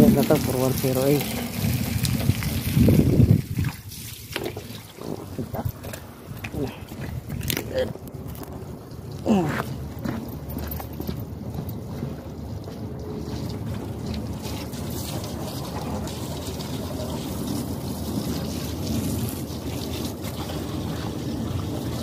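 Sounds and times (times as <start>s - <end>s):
wind buffeting microphone: 1.3s - 14.4s.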